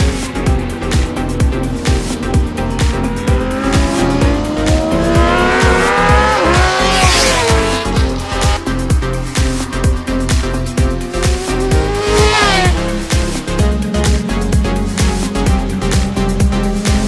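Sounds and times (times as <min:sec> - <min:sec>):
background music with beat: 0:00.0 - 0:17.0
motorcycle engine revving past: 0:02.9 - 0:15.1.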